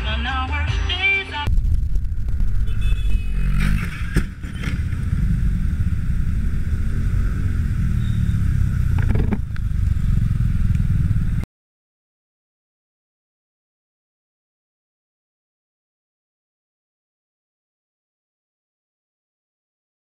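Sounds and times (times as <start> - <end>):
hard impact and scraping clatter: 1.5 - 5.2, 8.9 - 9.6
wind rumble on microphone: 1.5 - 11.4.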